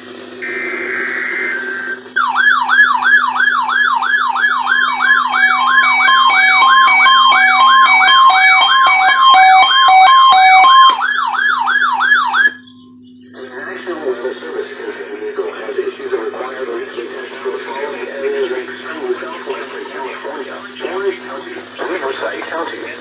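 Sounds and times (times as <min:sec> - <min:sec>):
buzzy data tones: 0:00.0 - 0:23.0
electronic siren falling sweeps: 0:00.4 - 0:12.8
steady beeps: 0:00.4 - 0:15.4.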